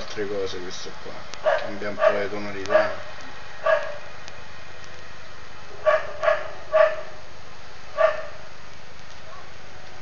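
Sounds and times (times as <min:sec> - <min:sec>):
dog barking: 0:01.4 - 0:03.0, 0:03.6 - 0:04.0, 0:05.8 - 0:07.2, 0:08.0 - 0:08.4.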